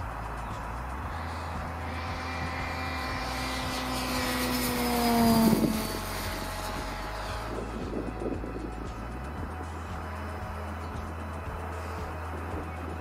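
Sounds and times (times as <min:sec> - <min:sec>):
model airplane motor whine: 0:00.0 - 0:13.0.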